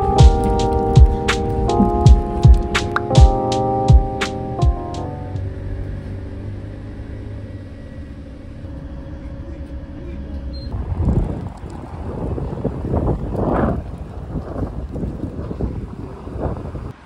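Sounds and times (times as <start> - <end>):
gusty wind on microphone: 0.0 - 3.5, 10.6 - 17.0
bus engine rumble: 0.0 - 17.0.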